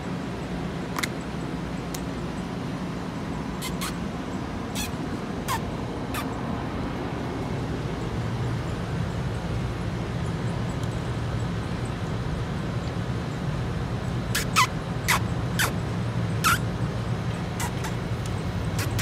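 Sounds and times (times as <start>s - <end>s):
road traffic rumble: 0.0s - 19.0s
short high-pitched squeaks: 3.6s - 4.0s, 14.4s - 15.7s, 16.4s - 16.6s, 17.6s - 18.0s, 18.8s - 19.0s.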